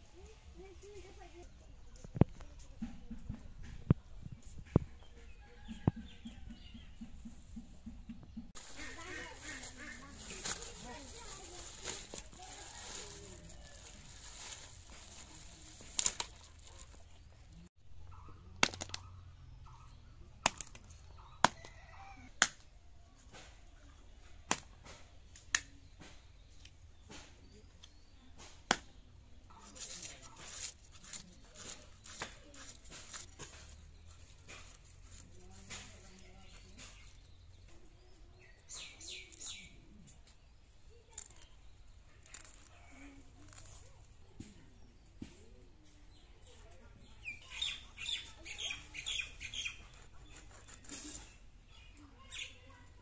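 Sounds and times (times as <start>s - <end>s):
sharp clicks and slaps: 18.5s - 19.1s, 20.4s - 21.7s, 22.4s - 22.7s, 24.5s - 28.9s.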